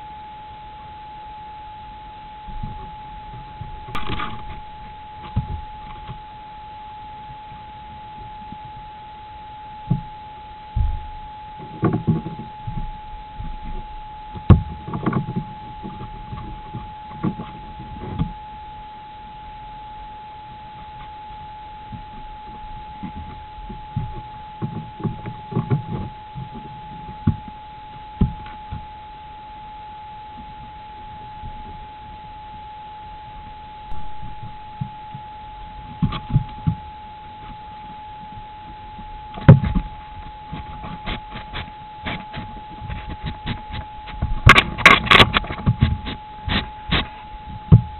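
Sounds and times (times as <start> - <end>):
thin high tone: 3.9 - 5.9.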